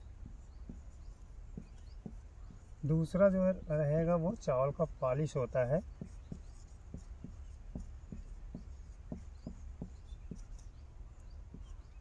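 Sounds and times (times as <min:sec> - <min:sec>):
marker scratching on whiteboard: 0:00.2 - 0:03.0, 0:05.6 - 0:10.8.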